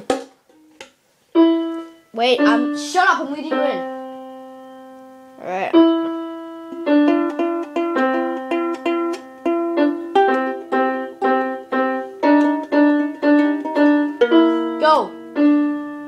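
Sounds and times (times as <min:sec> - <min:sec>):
ukulele strumming: 0:00.0 - 0:03.9, 0:06.7 - 0:15.3.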